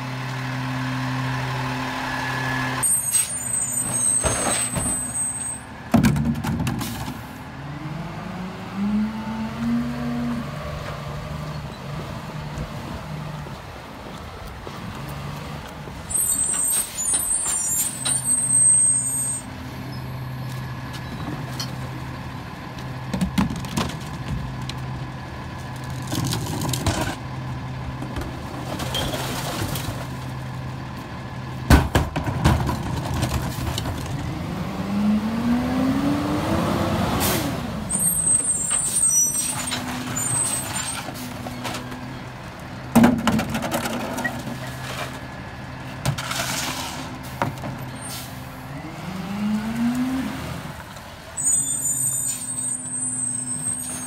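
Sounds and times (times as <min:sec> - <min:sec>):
truck engine running: 0:19.0 - 0:35.4
engine revving whine: 0:48.6 - 0:50.7.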